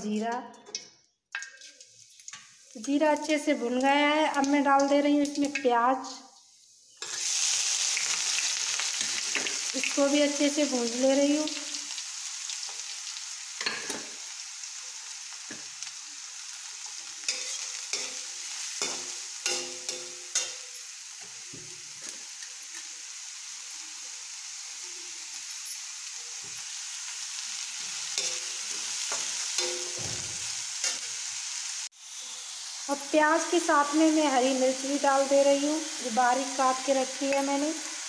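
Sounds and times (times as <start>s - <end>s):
onions sizzling in hot oil: 1.6s - 38.0s
metal spatula scraping pan: 17.3s - 20.8s.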